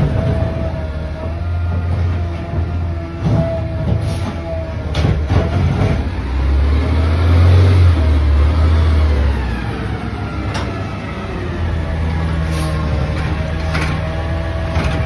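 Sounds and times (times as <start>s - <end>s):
garbage truck engine rumble: 0.0s - 15.0s.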